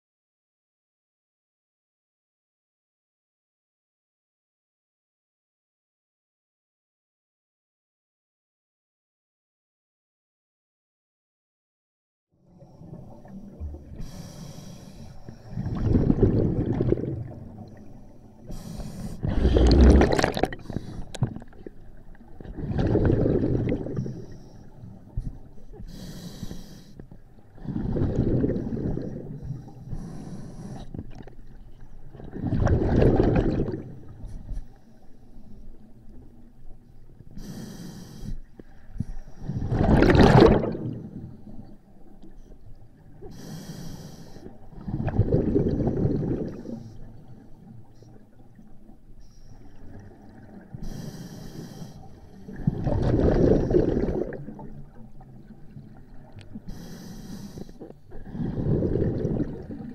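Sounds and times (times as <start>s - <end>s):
regulator inhale hiss: 14.0s - 15.7s, 17.8s - 19.5s, 20.6s - 21.2s, 24.0s - 27.2s, 28.6s - 31.0s, 37.3s - 39.6s, 43.2s - 44.6s, 50.8s - 52.4s, 56.6s - 58.6s
exhaled bubbles rushing: 15.5s - 17.8s, 19.2s - 24.2s, 27.6s - 29.4s, 32.1s - 34.2s, 39.5s - 41.2s, 44.7s - 46.8s, 52.5s - 55.0s, 58.2s - 59.9s.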